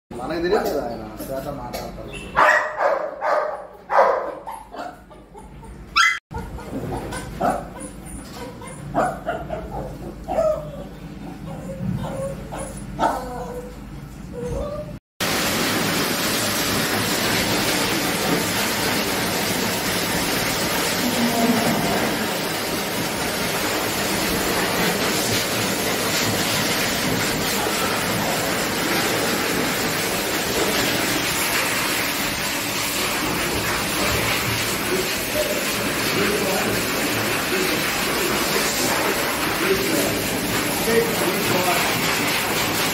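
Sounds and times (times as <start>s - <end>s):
dog whimpering: 4.4s - 15.0s
blower dryer rushing air: 15.2s - 42.9s.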